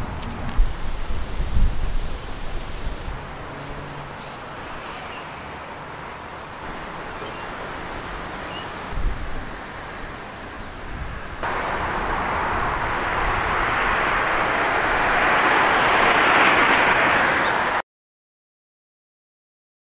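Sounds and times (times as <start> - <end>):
outdoor rushing noise: 0.0 - 3.9, 11.4 - 17.8.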